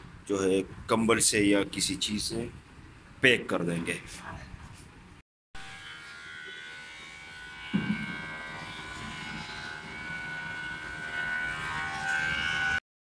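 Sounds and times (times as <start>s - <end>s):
electric fan running: 6.7s - 12.8s.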